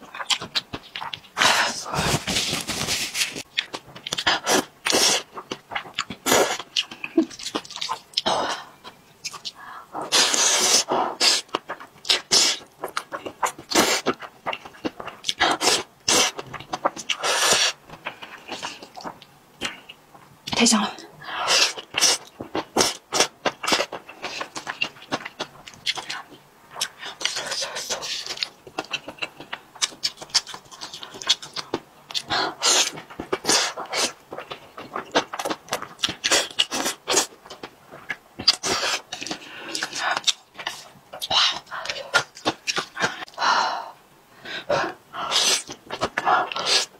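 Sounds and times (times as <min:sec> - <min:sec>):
wet chewing: 0:00.1 - 0:02.5, 0:03.5 - 0:20.3, 0:21.6 - 0:43.4.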